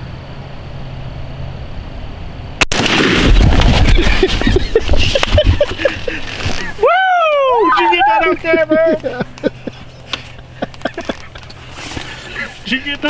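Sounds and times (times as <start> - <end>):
rough noise with low rumble: 0.0 - 7.6
gunshot: 2.6 - 4.2.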